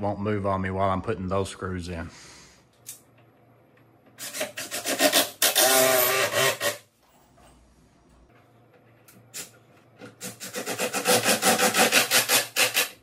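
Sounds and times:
power drill driving a screw: 4.2s - 6.8s.

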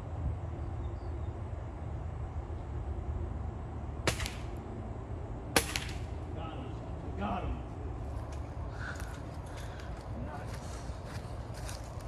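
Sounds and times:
low outdoor rumble: 0.0s - 12.0s
air rifle cracks: 4.1s - 4.6s, 5.6s - 6.1s.

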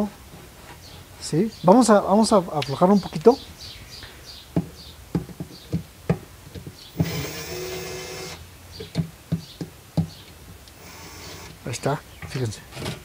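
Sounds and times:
cordless drill running: 6.9s - 8.4s, 10.8s - 11.6s.

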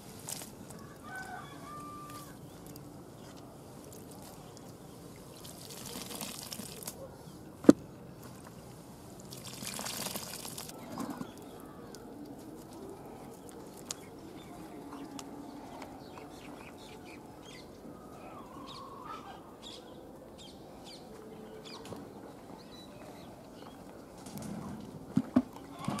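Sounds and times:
faint wavering calls: 10.7s - 21.8s
chickens chirping: 12.8s - 22.0s.

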